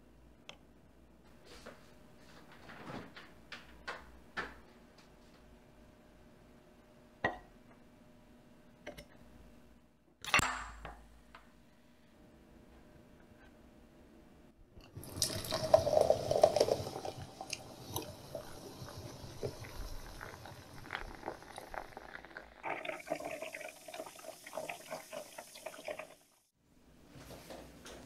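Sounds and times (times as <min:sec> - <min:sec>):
carbonation fizzing: 0:14.9 - 0:26.4
soda gushing into a glass: 0:15.0 - 0:26.3.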